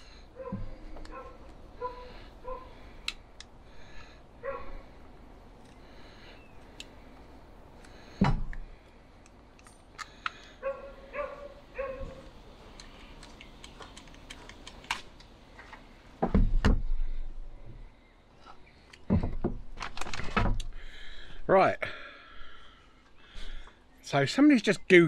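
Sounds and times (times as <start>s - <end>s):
dog barking: 0.4s - 2.7s, 4.4s - 4.8s, 10.6s - 12.2s
heavy thumps: 19.0s - 19.7s.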